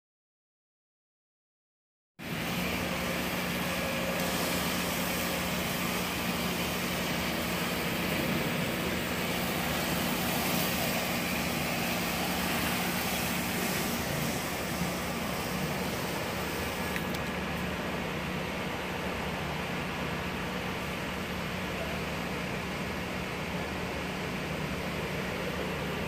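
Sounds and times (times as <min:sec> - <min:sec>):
pump engine humming: 0:02.2 - 0:26.0
spray hissing: 0:02.3 - 0:17.7.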